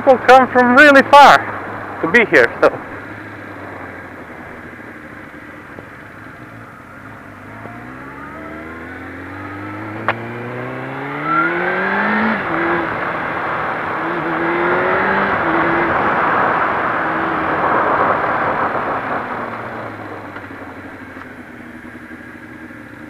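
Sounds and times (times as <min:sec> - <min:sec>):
motorcycle engine accelerating: 0:00.0 - 0:23.0
wind noise: 0:12.0 - 0:20.7.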